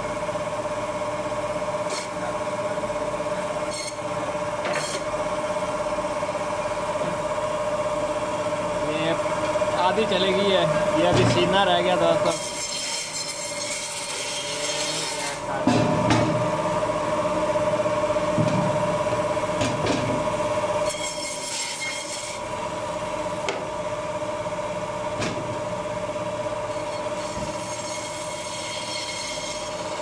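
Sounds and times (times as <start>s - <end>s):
band saw cutting bone: 1.8s - 2.4s, 3.4s - 5.4s, 9.8s - 16.6s, 20.8s - 23.7s, 26.6s - 30.0s.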